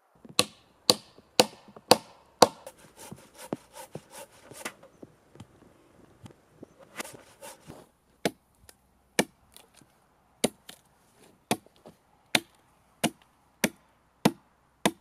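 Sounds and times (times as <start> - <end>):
axe chopping log: 0.3 - 4.8, 8.2 - 8.4, 9.2 - 9.4, 10.4 - 10.8, 11.5 - 15.0.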